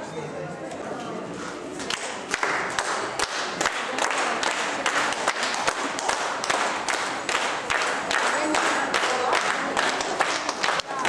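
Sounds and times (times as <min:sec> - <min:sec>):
audience applauding: 0:01.9 - 0:11.0.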